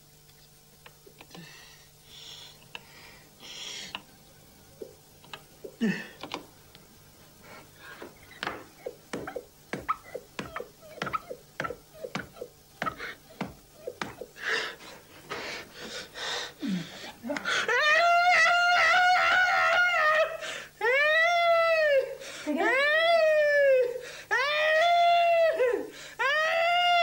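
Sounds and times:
mouth clicking and smacking: 4.8s - 6.5s, 8.2s - 14.5s
breathy panting vocal sounds: 8.8s - 17.7s.

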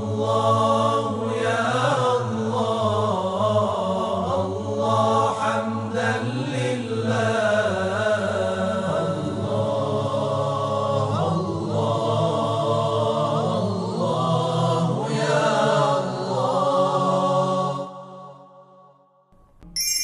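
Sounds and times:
voices chanting a melody: 0.0s - 18.0s.

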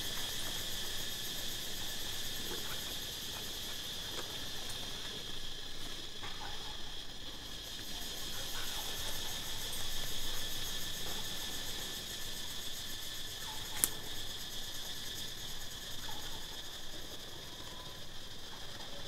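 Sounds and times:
insects droning: 0.0s - 19.0s
sharp click: 13.7s - 14.0s.

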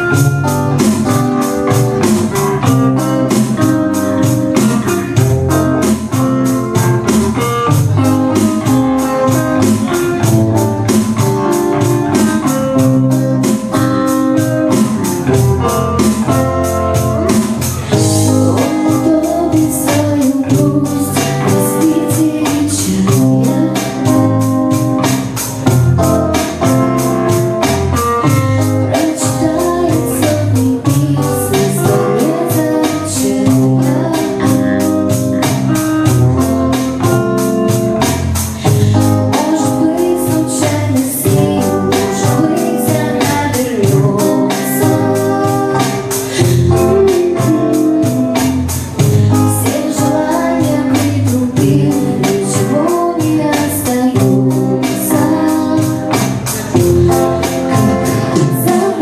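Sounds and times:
woman singing: 0.0s - 25.4s, 26.0s - 59.0s
bass guitar: 0.0s - 59.0s
electric guitar: 0.0s - 59.0s
steady drum beat: 0.0s - 59.0s.

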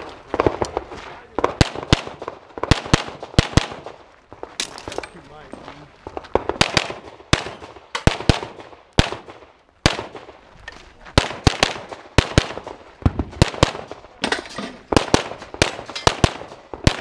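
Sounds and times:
pistol shots: 1.4s - 4.0s, 6.3s - 10.4s, 11.2s - 14.0s, 14.9s - 17.0s.

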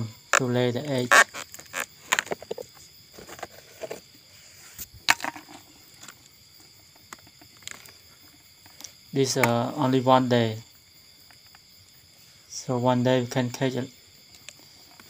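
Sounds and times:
palm fibres crackling and snapping: 0.3s - 3.5s, 7.0s - 9.5s.

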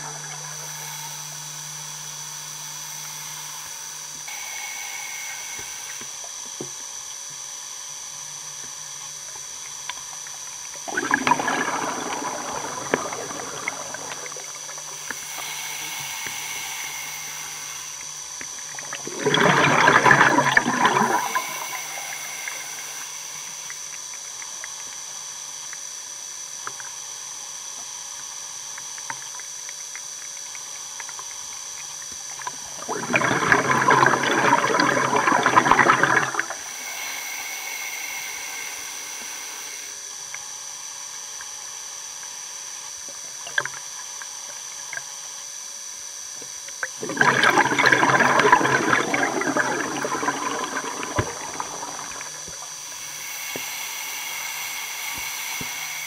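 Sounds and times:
exhaled air bubbling: 0.0s - 6.6s, 8.4s - 25.0s, 31.0s - 39.1s, 46.7s - 56.0s
underwater hiss: 0.0s - 56.0s.

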